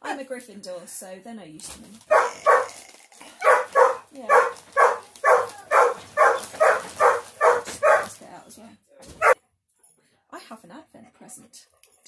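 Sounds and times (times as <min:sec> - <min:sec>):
dog barking: 0:02.1 - 0:02.8, 0:03.4 - 0:08.2, 0:09.2 - 0:09.4.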